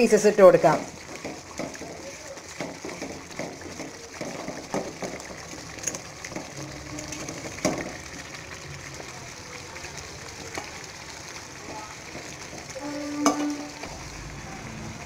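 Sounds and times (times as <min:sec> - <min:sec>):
gravy bubbling in a pan: 0:00.0 - 0:15.0.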